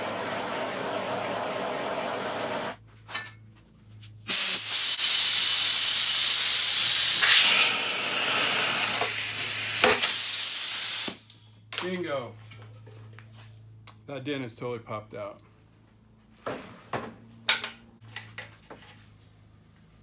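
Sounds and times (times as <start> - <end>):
gas torch hissing: 0.0 - 2.8, 4.3 - 11.2
compressed air hissing: 4.3 - 11.2.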